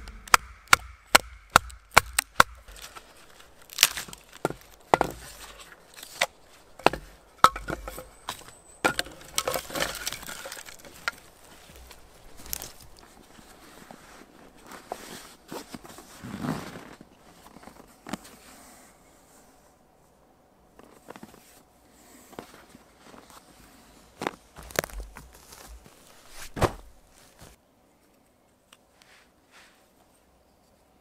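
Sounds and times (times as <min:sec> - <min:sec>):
wood being chopped: 0:00.0 - 0:03.0, 0:03.7 - 0:05.6, 0:06.2 - 0:11.2.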